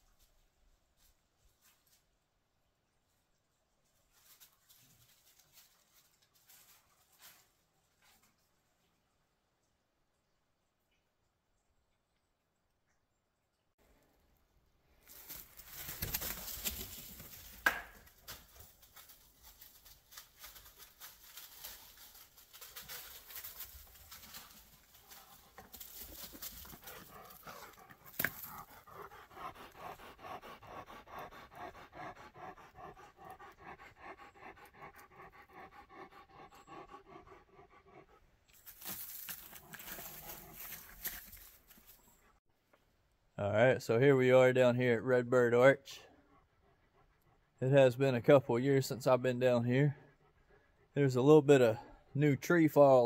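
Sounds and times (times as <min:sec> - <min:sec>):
rustling: 0:14.9 - 0:30.0, 0:38.5 - 0:42.4
dog panting: 0:18.5 - 0:38.3, 0:46.0 - 0:47.6, 0:49.9 - 0:51.0.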